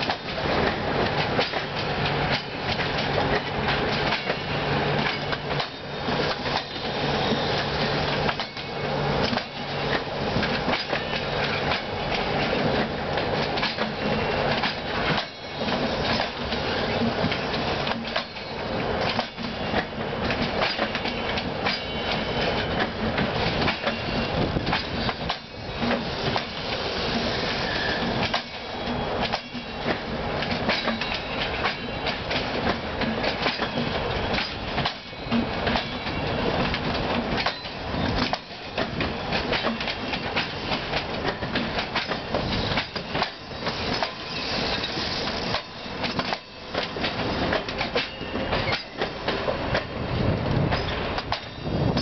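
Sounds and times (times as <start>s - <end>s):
train wheels rumbling on rails: 0.0s - 52.0s.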